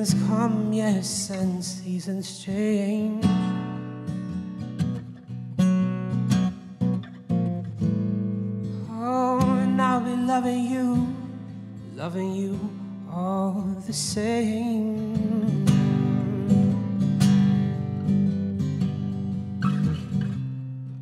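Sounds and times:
man singing: 0.0s - 3.6s, 8.8s - 17.0s
acoustic guitar strumming: 0.0s - 21.0s.

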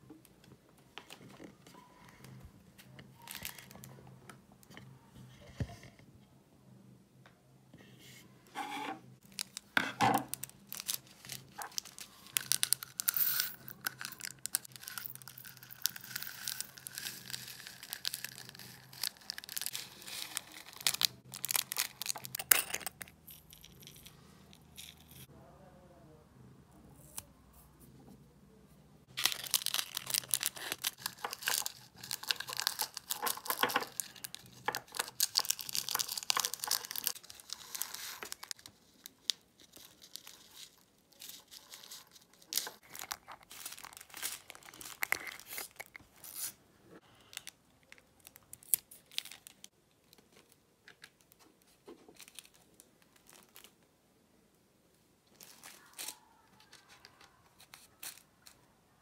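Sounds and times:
plastic bags crinkling: 9.2s - 22.5s, 29.1s - 46.5s, 47.2s - 50.6s, 52.1s - 53.8s
beads rattling into glass jars: 10.3s - 25.3s, 29.2s - 38.6s.

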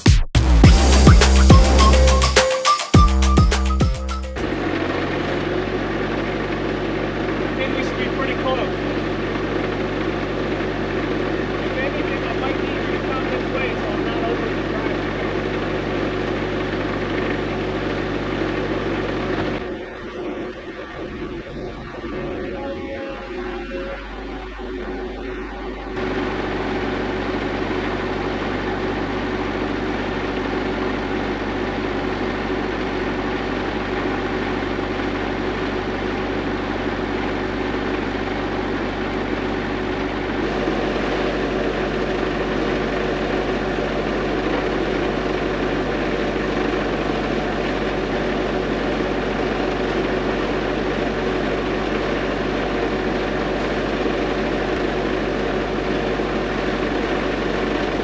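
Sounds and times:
engine idling: 0.4s - 2.4s, 3.0s - 58.0s.

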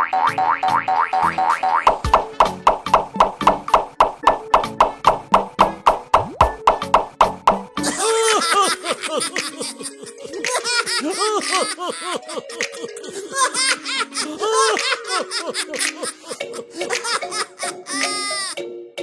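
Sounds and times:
light background music: 0.1s - 19.0s
high-pitched cartoon giggling: 7.9s - 18.6s.

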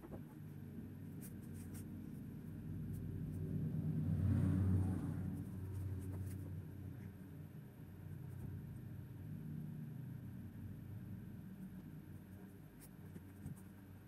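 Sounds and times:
low rumble: 2.2s - 12.2s.

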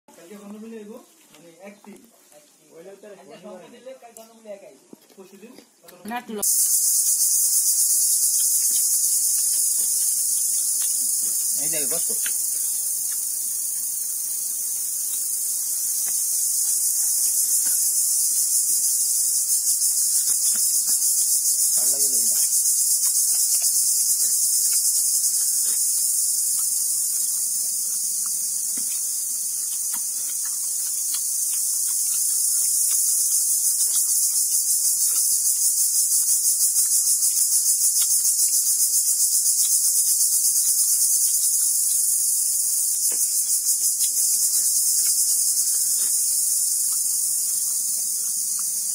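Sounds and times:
high-pitched insect chorus: 0.1s - 5.5s, 6.2s - 48.9s.

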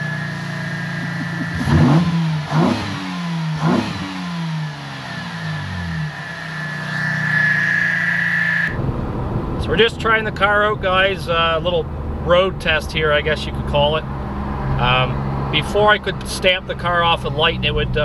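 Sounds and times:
steady high whine: 0.0s - 9.9s
car engine idling and revving: 0.0s - 18.0s.

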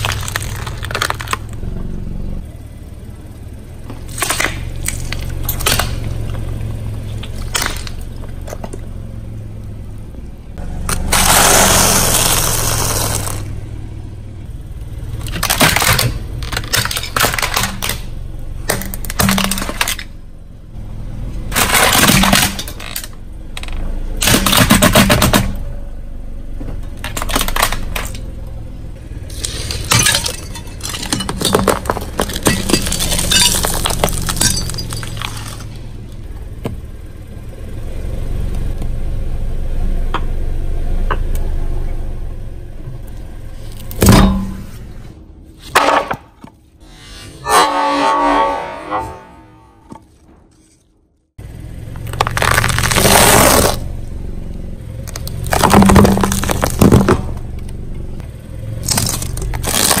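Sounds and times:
plastic toy cracking: 0.0s - 1.6s
tyre crushing objects: 0.0s - 1.7s, 10.9s - 13.5s, 29.3s - 35.8s, 45.6s - 46.6s, 51.9s - 53.9s, 55.0s - 57.6s, 58.8s - 60.0s
steady low hum: 0.0s - 60.0s.

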